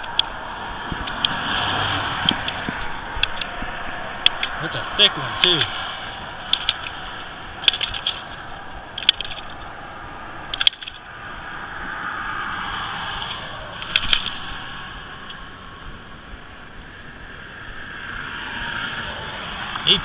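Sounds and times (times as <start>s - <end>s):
tape measure clicks and clatters: 6.5s - 7.0s, 7.6s - 9.6s, 10.5s - 11.1s, 13.2s - 14.4s.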